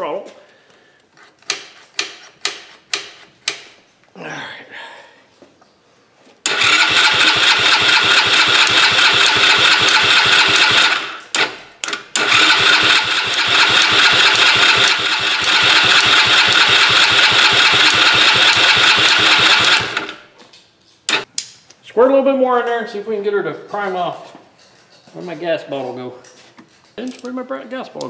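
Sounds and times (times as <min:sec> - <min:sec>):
engine cranking on starter: 0:06.5 - 0:20.3.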